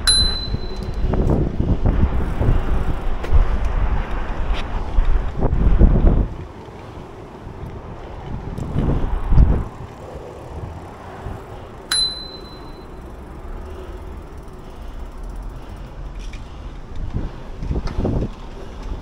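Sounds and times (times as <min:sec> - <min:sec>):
bicycle bell ding: 0:00.0 - 0:01.1, 0:11.9 - 0:13.0
wind gusts on microphone: 0:00.0 - 0:12.3, 0:15.8 - 0:19.0.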